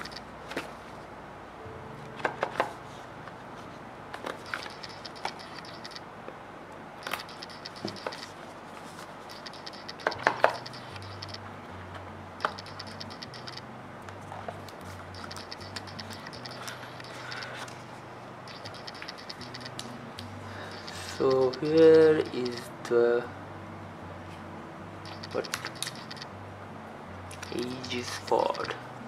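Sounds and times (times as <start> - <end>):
camera autofocus motor whirring: 4.4 - 6.1, 7.0 - 8.4, 9.3 - 11.4, 12.4 - 13.6, 15.2 - 17.7, 18.5 - 19.8, 25.1 - 26.3.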